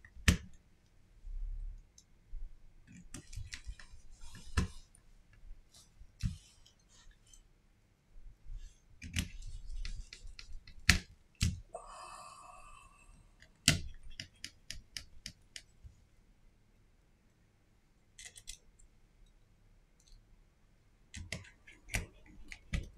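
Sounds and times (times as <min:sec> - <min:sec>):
clicks and taps of small parts: 0:21.2 - 0:22.9.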